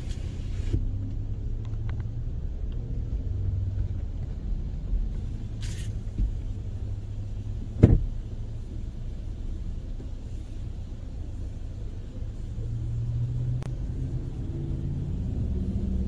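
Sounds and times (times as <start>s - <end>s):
car engine rumble and road noise: 0.0s - 16.0s
brief hiss: 5.6s - 6.0s
sharp thump: 7.8s - 8.1s.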